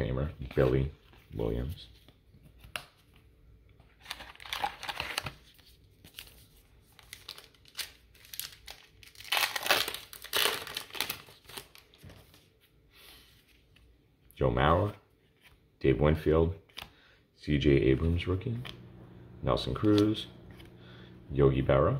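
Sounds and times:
wrapper tearing and crinkling: 4.0s - 5.4s, 6.9s - 12.0s.

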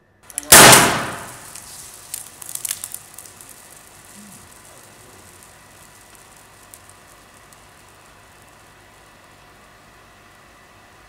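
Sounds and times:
foil confetti pattering on floor: 0.3s - 8.8s.

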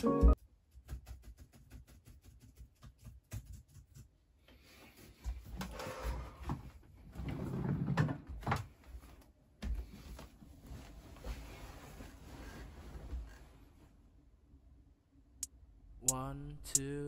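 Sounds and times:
cloth rustling: 9.8s - 14.1s.

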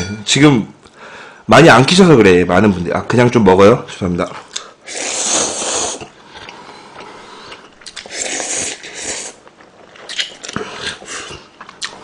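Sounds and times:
person slurping noodles: 4.8s - 9.4s.

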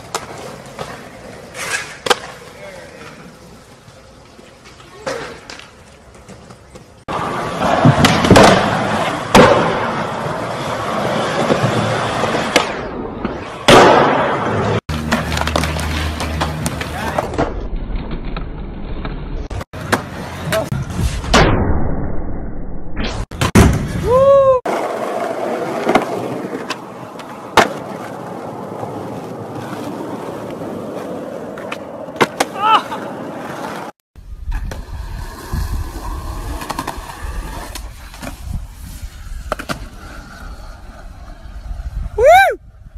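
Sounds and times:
skateboard clacking on ground: 0.0s - 9.9s, 13.7s - 17.4s
skateboard wheels rolling on concrete: 0.0s - 21.3s, 23.2s - 42.9s.

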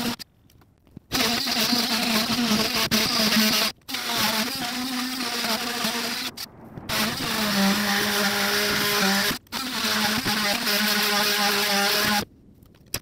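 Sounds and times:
power tool motor drone: 4.0s - 12.2s.

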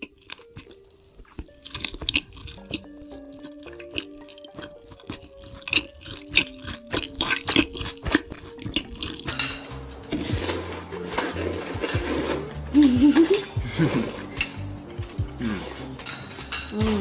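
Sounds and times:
slurping noodles: 0.0s - 9.4s, 10.1s - 14.6s, 15.4s - 16.0s
chewing: 0.0s - 17.0s
light background music: 0.0s - 17.0s.

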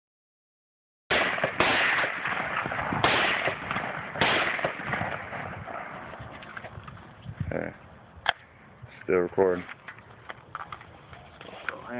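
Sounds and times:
rifle shots echoing: 1.1s - 6.2s.

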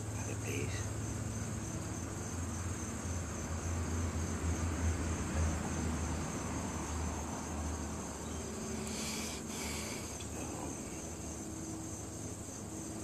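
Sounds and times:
crickets droning: 0.0s - 13.0s.

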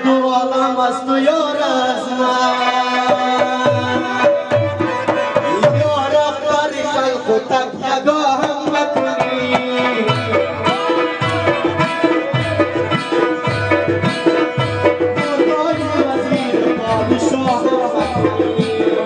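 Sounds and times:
keyboard accompaniment: 0.0s - 19.0s
man singing into a microphone: 0.0s - 19.0s
tabla drum: 0.0s - 19.0s.

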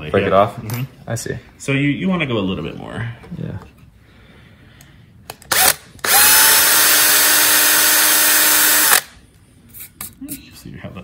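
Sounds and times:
drill boring into metal rivet: 5.5s - 9.1s.

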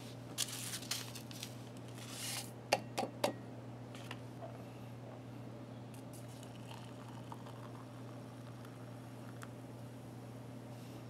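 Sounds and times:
steady low hum: 0.0s - 11.0s
coffee granules rustling: 0.4s - 2.4s.

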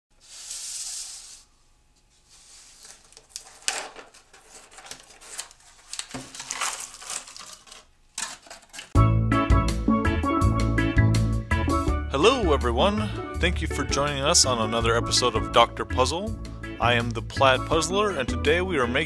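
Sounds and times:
cardboard box rustling and crinkling: 2.5s - 8.8s
puzzle pieces clattering onto table: 3.3s - 9.0s.

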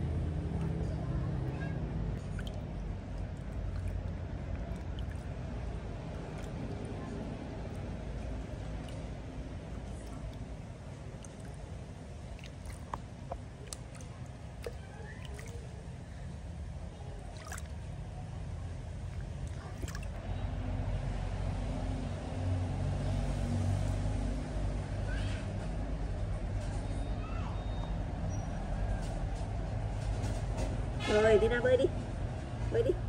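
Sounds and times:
low engine hum: 0.0s - 33.0s
water splashing and dripping: 2.2s - 20.2s.

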